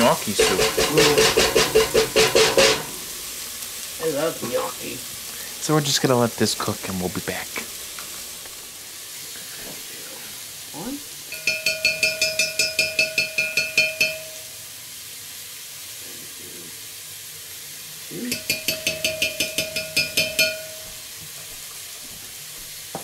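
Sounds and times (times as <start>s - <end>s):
metal spoon clinking glass bowl: 11.3s - 14.4s, 18.3s - 20.9s.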